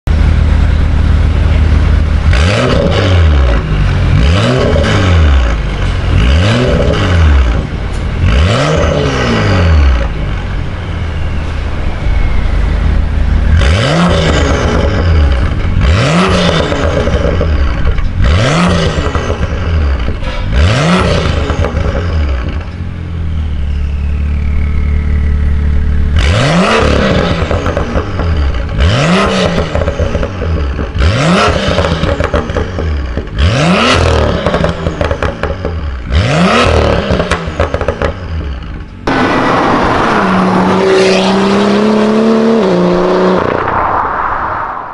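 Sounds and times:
car engine idling: 0.1s - 2.4s
car engine revving: 0.1s - 44.9s.

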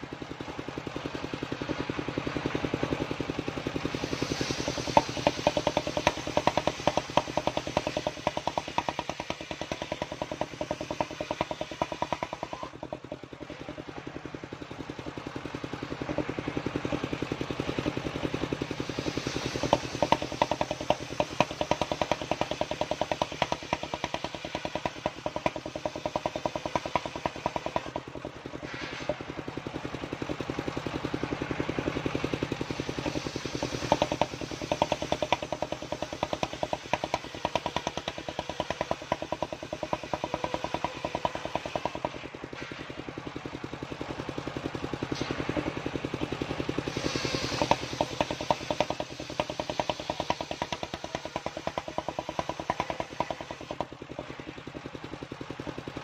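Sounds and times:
sawmill engine pulsing: 0.0s - 56.0s
saw blade hissing through wood: 3.6s - 12.7s, 16.8s - 30.0s, 31.4s - 43.8s, 45.0s - 53.7s.

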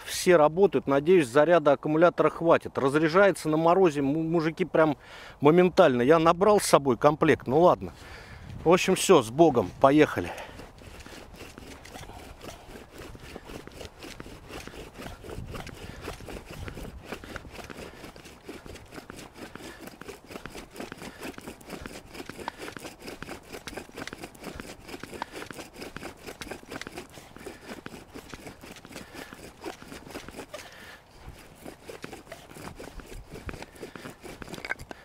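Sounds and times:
bow drill dry scraping: 8.7s - 35.0s.

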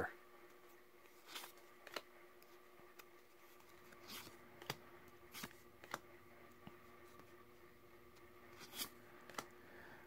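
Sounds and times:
faint steady hum: 0.0s - 10.0s
cards flicking: 1.0s - 7.3s, 8.2s - 9.6s.

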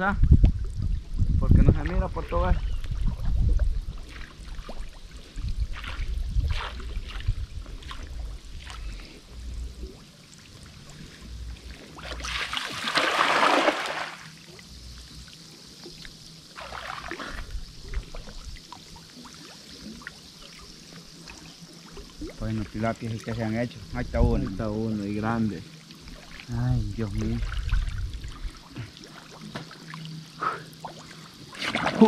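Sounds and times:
low rumble: 0.0s - 10.0s
water splashing and trickling: 0.4s - 32.0s.

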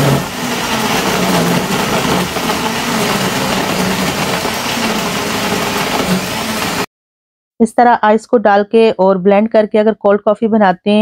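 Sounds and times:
blender running: 0.0s - 6.9s.

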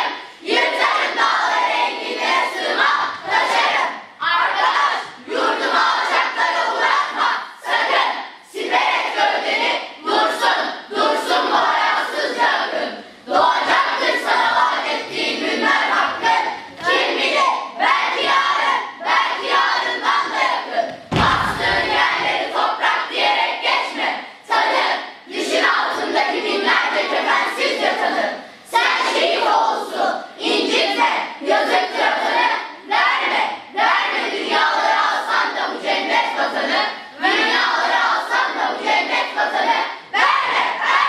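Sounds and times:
children's choir singing: 0.0s - 41.0s.

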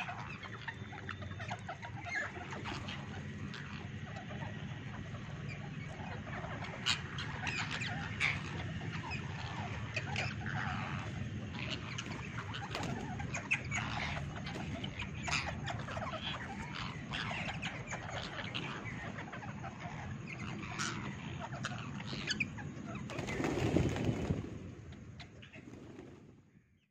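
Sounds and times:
parakeets chirping: 0.0s - 24.4s
rush of wingbeats: 21.7s - 26.4s.

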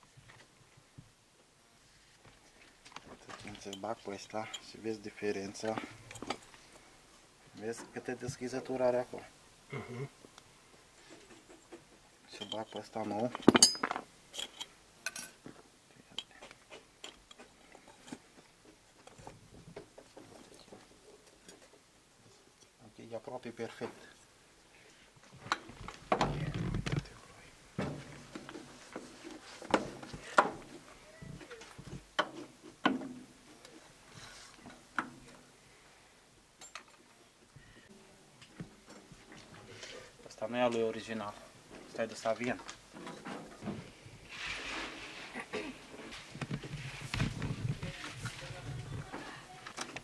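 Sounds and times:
light metallic clicks and scrapes: 2.4s - 4.8s, 11.0s - 15.4s.

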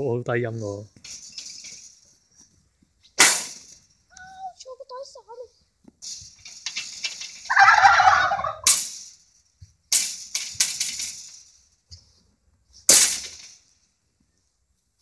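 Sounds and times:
turkeys gobbling: 7.5s - 8.8s.

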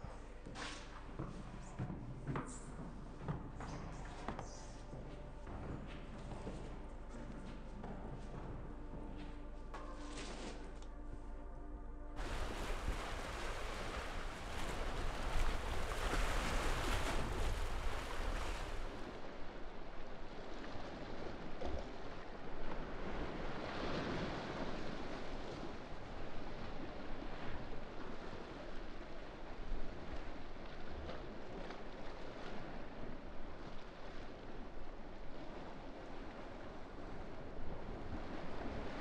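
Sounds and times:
sea waves: 12.2s - 39.0s
wind on microphone: 12.2s - 39.0s.

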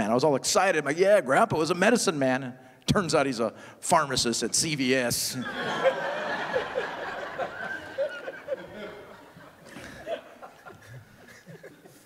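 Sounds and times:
audience laughing: 5.4s - 12.0s.

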